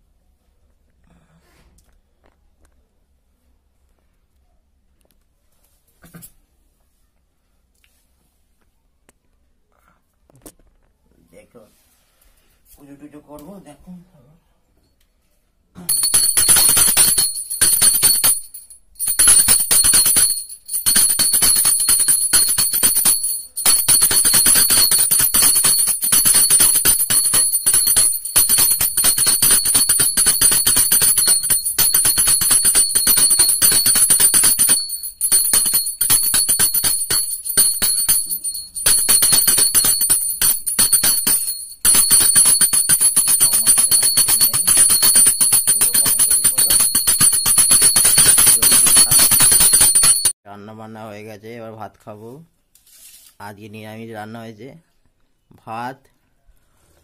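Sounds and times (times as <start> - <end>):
hand bell ringing rapidly: 15.9 - 50.4.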